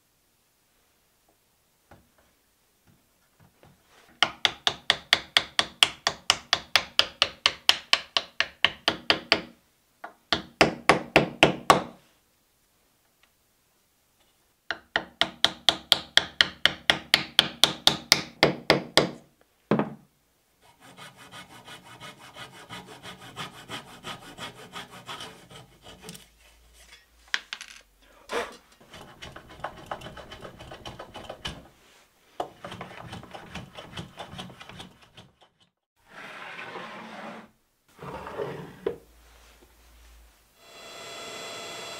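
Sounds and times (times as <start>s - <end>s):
wooden mallet tapping on plywood: 4.2s - 11.9s, 14.7s - 20.0s
wood rubbing and scraping: 20.6s - 39.9s.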